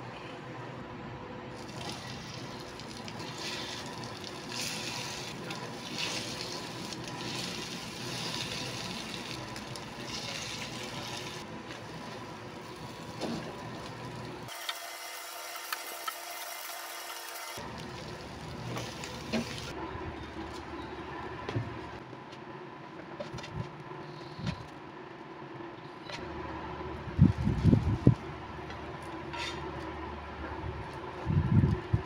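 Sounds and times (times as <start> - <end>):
food sizzling in a frying pan: 12.6 - 19.7.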